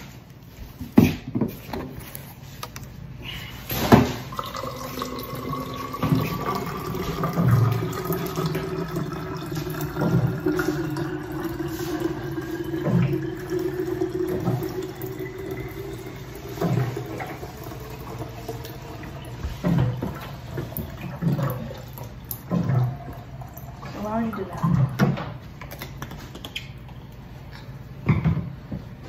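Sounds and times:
water jug glugging: 3.6s - 25.6s
water running into plastic bottle: 4.2s - 25.0s.

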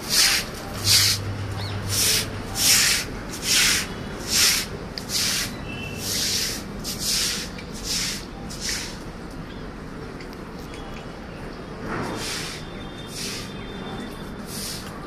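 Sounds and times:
broom sweeping water: 0.0s - 9.1s, 11.8s - 13.6s, 14.2s - 15.0s.

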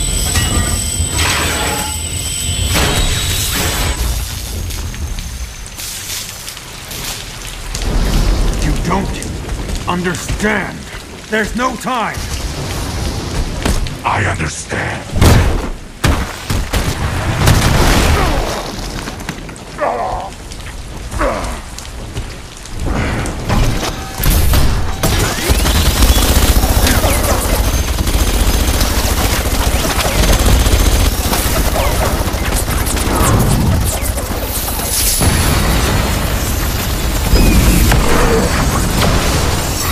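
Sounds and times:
heavy booms and crashes: 21.0s - 39.9s.

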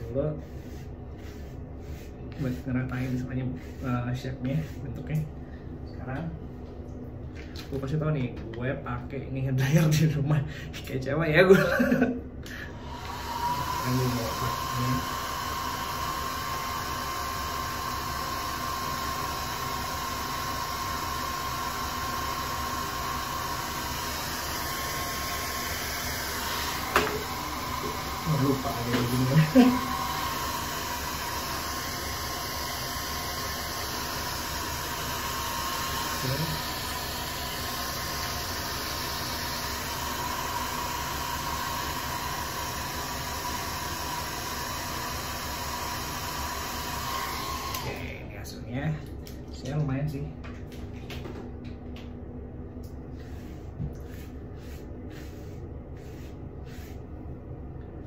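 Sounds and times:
hair dryer running: 0.0s - 3.9s, 11.5s - 48.2s, 52.8s - 57.0s.

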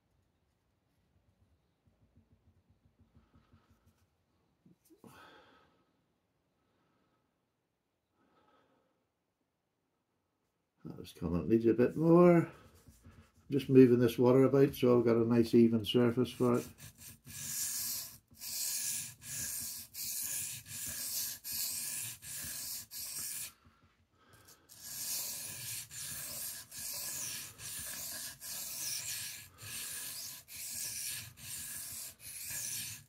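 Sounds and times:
knife scraping on wet whetstone: 16.3s - 23.6s, 24.6s - 33.0s.

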